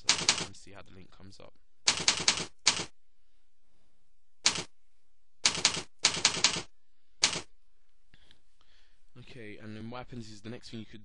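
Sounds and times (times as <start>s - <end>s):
computer keyboard typing: 0.0s - 0.5s, 1.9s - 2.9s, 4.4s - 4.7s, 5.4s - 7.5s.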